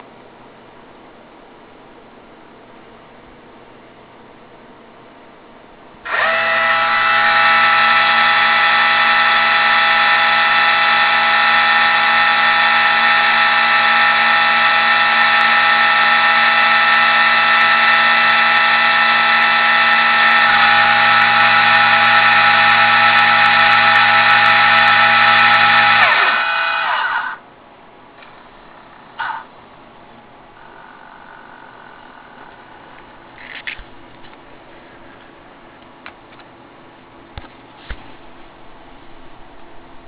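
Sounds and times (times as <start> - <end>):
motor gear whine: 6.0 - 27.4, 28.2 - 33.9.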